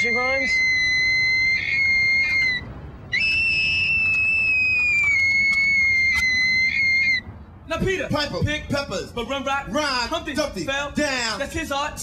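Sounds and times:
person whistling: 3.2s - 7.2s.

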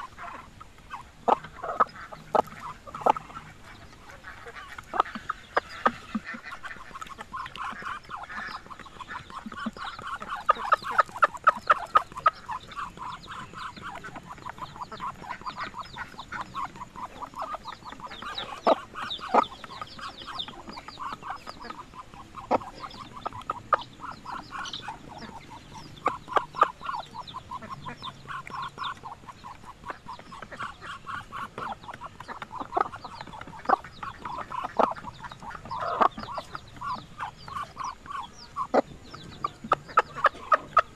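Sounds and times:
chickens clucking: 0.0s - 40.9s
ducks quacking: 0.0s - 40.9s.

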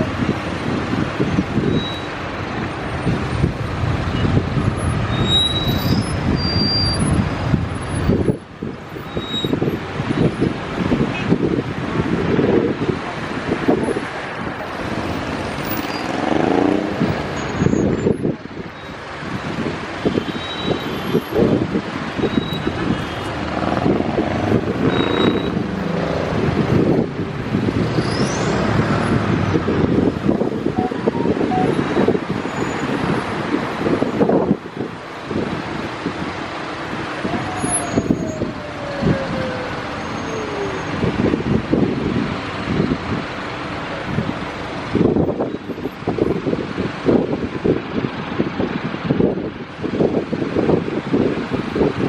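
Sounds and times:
heavy road traffic rumble: 0.0s - 52.0s
high rising squeak: 27.9s - 29.0s.

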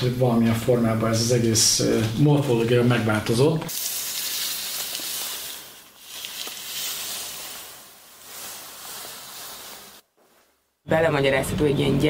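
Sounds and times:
hissing rustling noise: 3.7s - 10.8s.

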